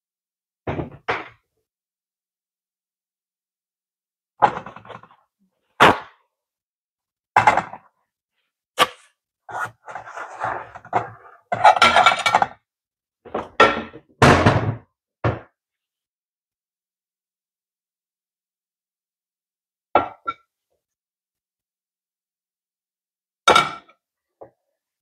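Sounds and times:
kitchen knocks and clatters: 0:00.6 - 0:01.4, 0:04.4 - 0:05.1, 0:07.4 - 0:07.9, 0:10.7 - 0:12.6, 0:13.2 - 0:15.6.

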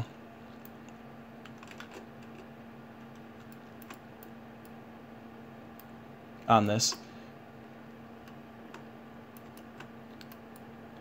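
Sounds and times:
computer control clicks: 0:03.1 - 0:04.8, 0:08.2 - 0:10.7.

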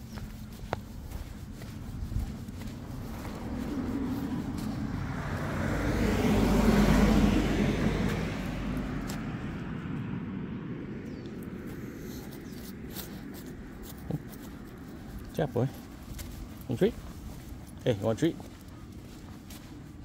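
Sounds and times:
car driving past: 0:02.6 - 0:14.7.

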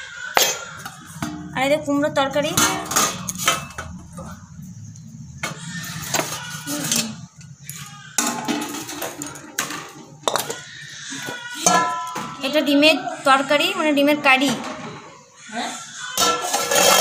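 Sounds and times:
metal pot lids and bowls clinking: 0:00.3 - 0:04.4, 0:05.4 - 0:12.5, 0:16.2 - 0:17.0.

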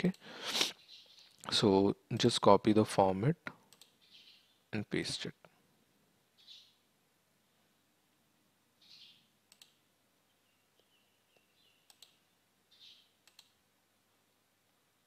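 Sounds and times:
computer mouse clicks: 0:03.7 - 0:04.0, 0:09.5 - 0:09.8, 0:10.8 - 0:12.2, 0:13.2 - 0:13.6.

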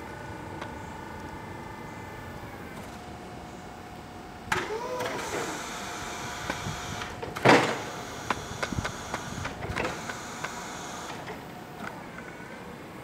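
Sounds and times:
electric motor whine: 0:04.5 - 0:11.2.

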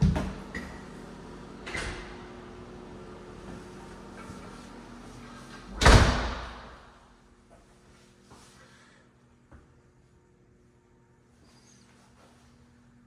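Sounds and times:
door shutting with heavy thud: 0:05.7 - 0:06.8.

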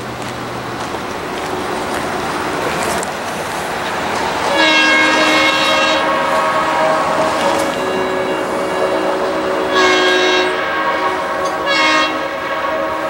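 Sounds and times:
diesel locomotive running: 0:00.0 - 0:13.0
locomotive air horn: 0:04.2 - 0:13.0.

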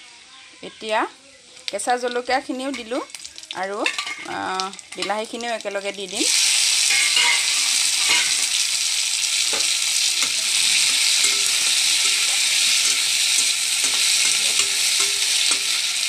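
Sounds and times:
food sizzling in hot oil: 0:00.0 - 0:16.0
pan stirring knocks: 0:09.5 - 0:15.8.

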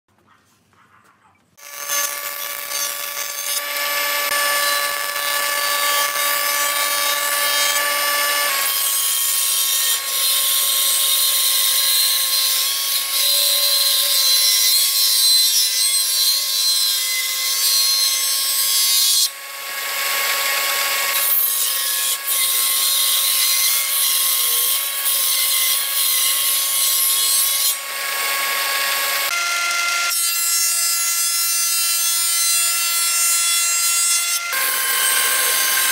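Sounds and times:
jointer motor and cutterhead whine: 0:01.6 - 0:31.1, 0:33.9 - 0:35.9
planer knives cutting boards: 0:32.2 - 0:35.9.

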